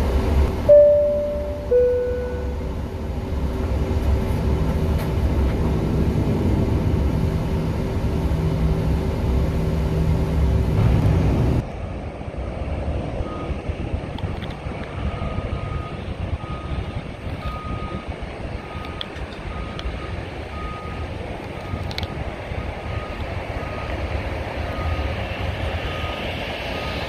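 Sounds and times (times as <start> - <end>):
jet engines droning: 0.0 - 27.0
low steady hum: 0.2 - 12.1
short falling tone: 0.6 - 2.7
wind noise: 2.5 - 27.0.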